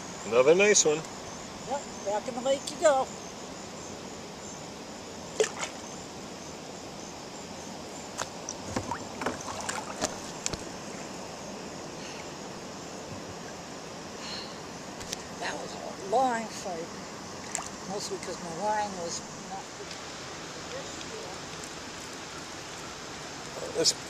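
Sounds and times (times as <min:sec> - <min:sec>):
paddle knocking on kayak hull: 0:08.6 - 0:10.6
wash of water: 0:08.7 - 0:10.2.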